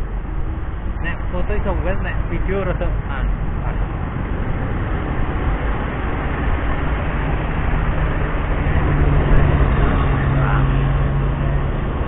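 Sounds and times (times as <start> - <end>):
car engines passing: 0.0 - 12.0
low engine drone: 0.0 - 12.0
motorcycles running: 0.0 - 12.0.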